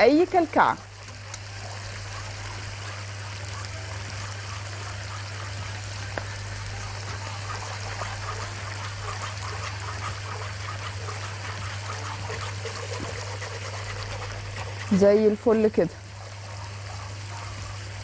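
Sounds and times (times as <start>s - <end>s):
steady low hum: 0.0s - 18.0s
whisk swishing in sauce: 0.9s - 18.0s
whisk striking pot: 4.0s - 15.0s.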